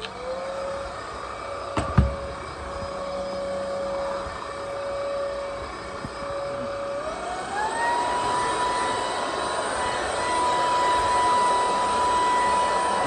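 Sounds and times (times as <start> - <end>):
vacuum cleaner motor whine: 0.0 - 13.0
sharp knocks: 1.8 - 2.4.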